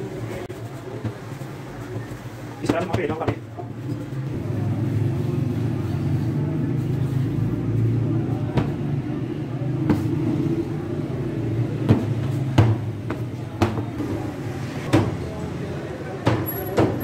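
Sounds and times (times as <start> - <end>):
hands working dough: 0.2 - 4.2.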